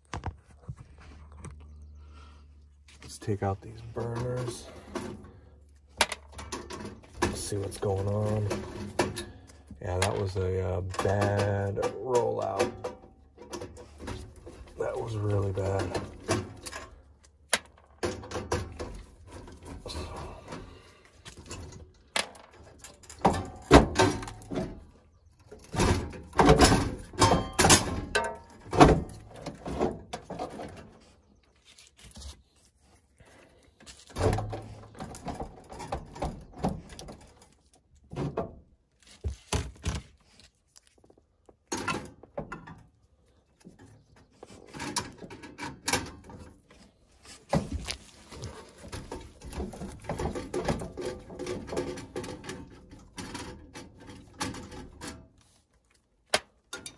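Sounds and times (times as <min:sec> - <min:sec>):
metallic clanks and rattles: 0:03.1 - 0:31.1, 0:33.9 - 0:38.8, 0:41.6 - 0:55.4, 0:56.6 - 0:56.9.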